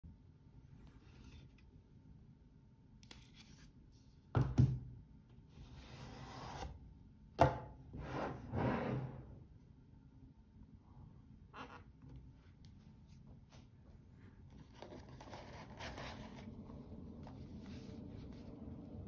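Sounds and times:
cardboard rubbing and scraping: 14.6 - 18.6.

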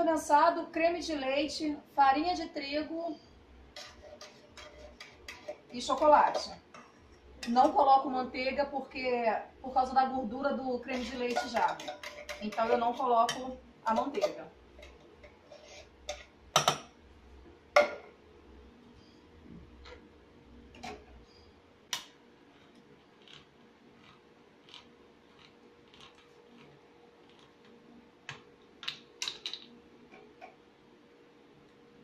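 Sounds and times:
faint steady hum: 0.0 - 32.0
utensil knocking on metal pot: 10.9 - 15.0.

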